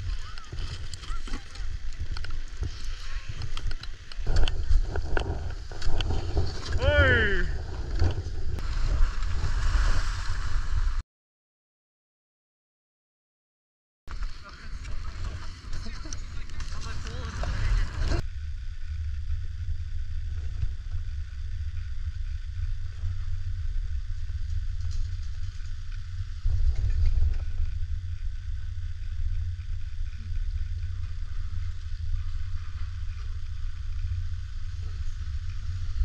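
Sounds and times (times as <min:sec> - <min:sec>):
wind rumble on microphone: 0:00.0 - 0:11.0, 0:14.1 - 0:36.0.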